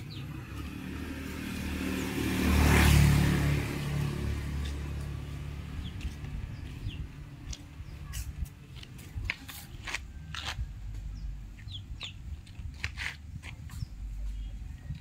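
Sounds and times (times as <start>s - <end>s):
steady low rumble: 3.6s - 15.0s.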